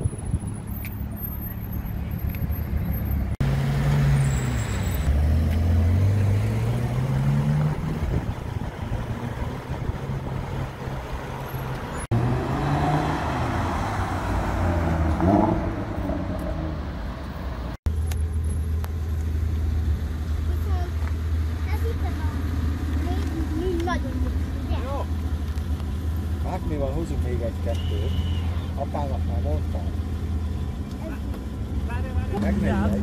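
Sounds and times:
passing traffic: 0:00.0 - 0:33.0
sports car engine accelerating: 0:03.4 - 0:18.1.

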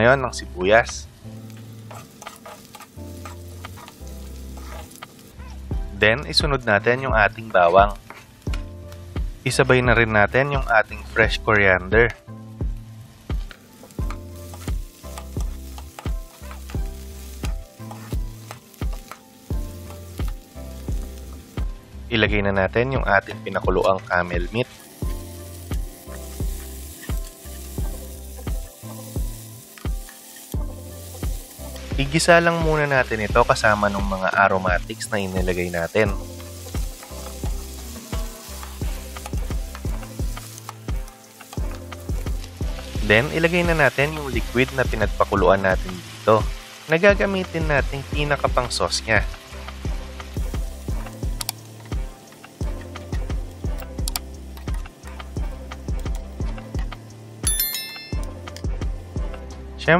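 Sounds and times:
food sizzling in hot oil: 0:00.0 - 0:59.5
background music with steady beat: 0:00.0 - 0:59.9
spatula stirring in pan: 0:01.5 - 0:05.4, 0:13.8 - 0:21.6, 0:24.7 - 0:32.0, 0:34.8 - 0:44.0
metal spoon scraping pan: 0:01.6 - 0:05.1.

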